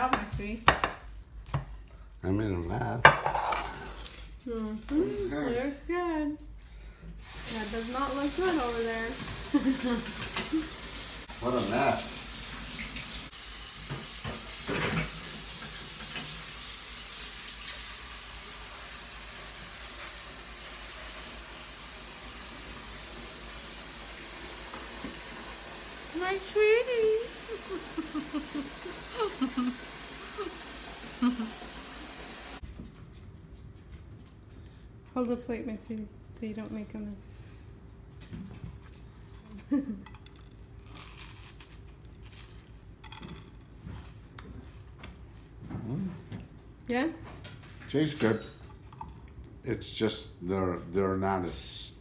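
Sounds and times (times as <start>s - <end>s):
puffed rice crackling and crunching: 40.1s - 43.7s.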